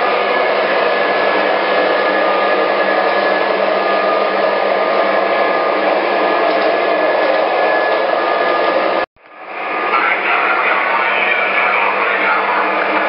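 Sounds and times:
model train wheels whirring: 0.0s - 13.0s
electronic diesel engine sound: 7.0s - 13.0s.

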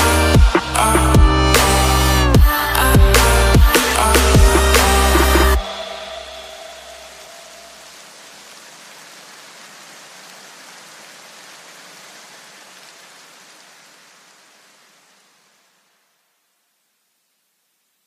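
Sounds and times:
low bass notes: 0.0s - 5.8s
rain-like hiss: 0.0s - 18.0s.

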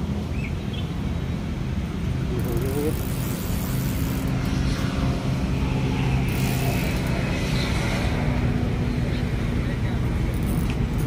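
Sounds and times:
fishing reel clicking: 2.4s - 4.6s, 6.3s - 7.2s, 10.3s - 11.0s
steady low rumble: 3.0s - 11.0s.

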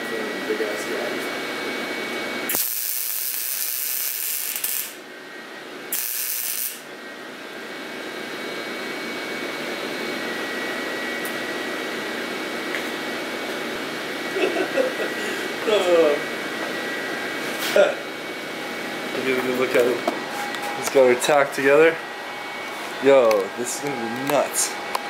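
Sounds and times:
steady background hum: 0.0s - 25.0s
welder hissing: 2.5s - 5.0s, 5.9s - 6.9s.

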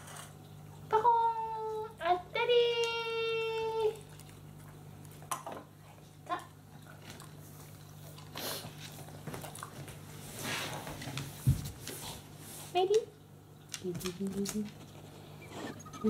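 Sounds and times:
dog whining: 15.2s - 16.0s.

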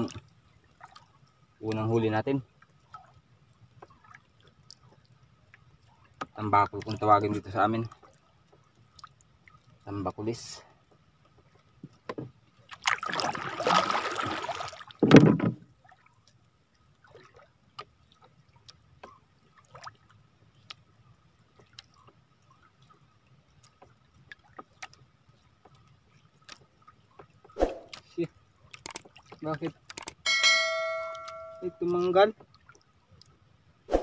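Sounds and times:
water splashing at a canoe: 0.0s - 10.0s, 10.9s - 34.0s
heavy thump on a boat: 15.0s - 15.7s
small clicks of fishing line: 28.7s - 30.2s.

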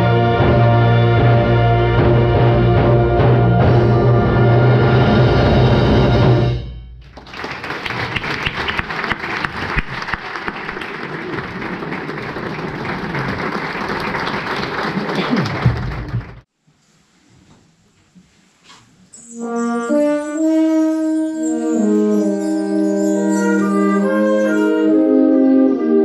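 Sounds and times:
audience applauding: 7.0s - 16.5s.

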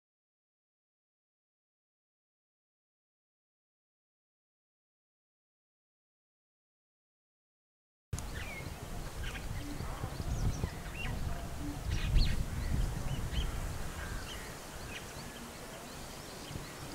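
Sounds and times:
small birds chirping: 8.2s - 16.9s.

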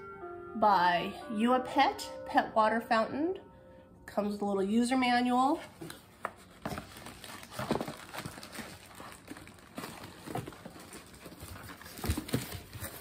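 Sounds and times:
packaging rustling: 5.6s - 13.0s.

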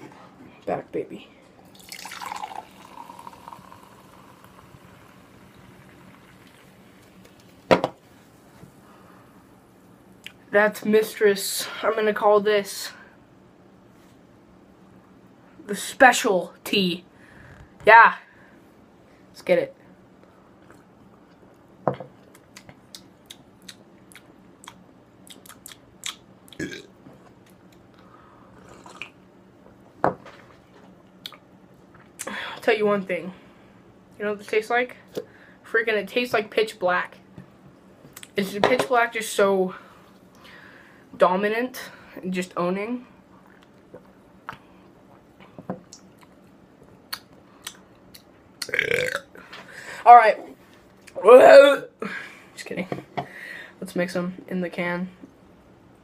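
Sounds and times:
liquid pouring into a glass: 1.6s - 6.8s
soda fizzing: 1.6s - 7.5s
lip smacks and tongue clicks: 22.3s - 26.6s, 47.1s - 48.7s
person swallowing: 26.5s - 26.9s, 28.6s - 29.2s, 48.6s - 49.4s.

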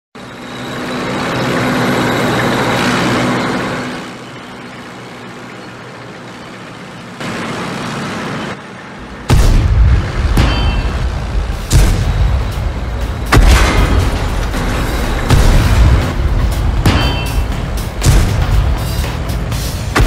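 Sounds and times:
tank engine hum: 0.2s - 20.0s.

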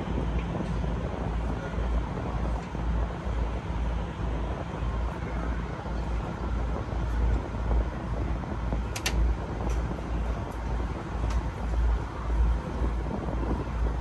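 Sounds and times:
steady rush of noise: 0.0s - 14.0s
wind buffeting microphone: 0.0s - 14.0s.

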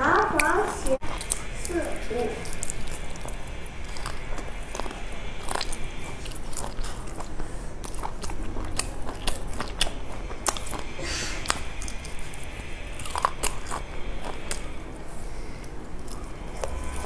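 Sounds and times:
person chewing food: 0.0s - 17.0s.

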